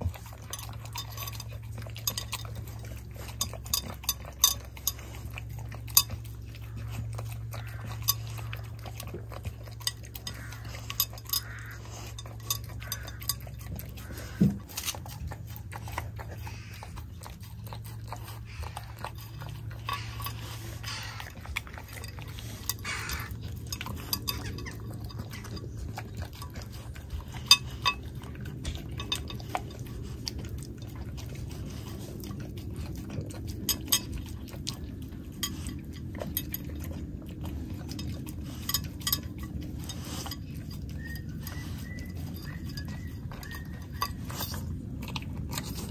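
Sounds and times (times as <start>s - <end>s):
puppy eating off a plate: 0.0s - 45.9s
sharp clinks against a plate: 3.3s - 5.1s, 9.8s - 14.4s, 21.8s - 25.8s, 35.4s - 36.7s, 37.9s - 44.6s.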